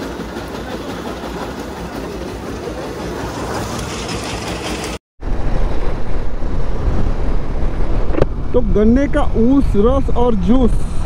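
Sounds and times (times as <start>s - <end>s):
mechanical running with rattle: 0.0s - 5.0s
low engine rumble: 0.0s - 11.0s
wind buffeting microphone: 5.2s - 11.0s.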